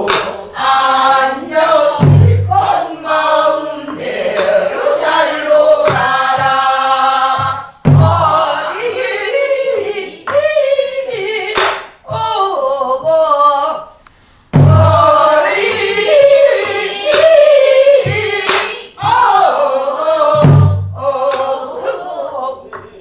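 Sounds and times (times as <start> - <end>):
woman singing with heavy vibrato: 0.0 - 14.0, 14.6 - 23.0
deep drum thuds: 2.0 - 2.8, 7.4 - 8.4, 14.6 - 15.8, 20.3 - 21.0.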